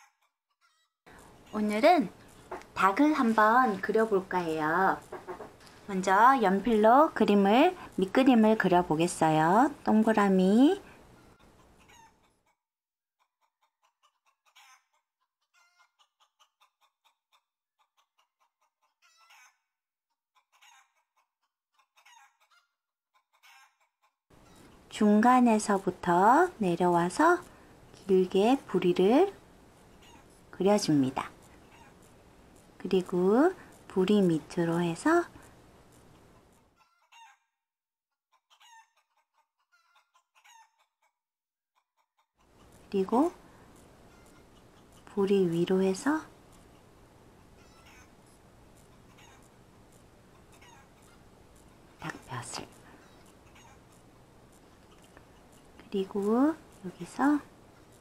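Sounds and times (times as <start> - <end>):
faint chicken clucking: 10.8 - 12.6, 13.4 - 19.6, 20.4 - 24.8, 31.2 - 32.1, 36.2 - 37.4, 38.3 - 41.1, 42.0 - 45.3, 46.5 - 54.1.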